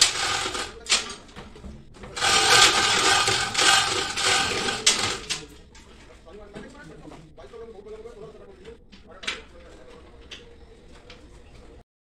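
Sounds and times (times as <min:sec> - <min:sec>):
chain clattering through hoist: 0:00.0 - 0:01.3, 0:02.2 - 0:05.5.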